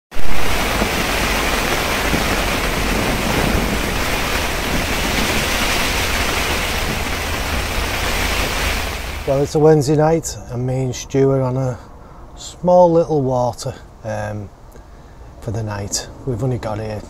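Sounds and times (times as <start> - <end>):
rain on fabric: 0.1 - 9.6
heavy rain: 0.1 - 9.8.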